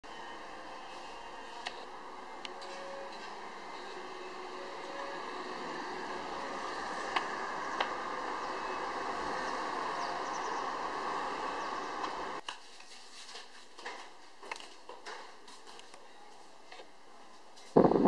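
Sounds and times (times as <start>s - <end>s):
street ambience: 0.0s - 12.4s
car driving past: 2.1s - 12.4s.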